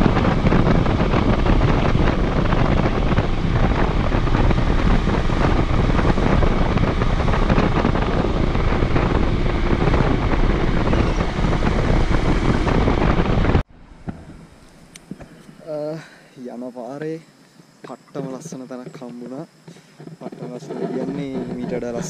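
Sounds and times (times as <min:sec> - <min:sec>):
motorcycle engine running: 0:00.0 - 0:15.2
wind buffeting microphone: 0:00.0 - 0:16.0, 0:16.8 - 0:22.0.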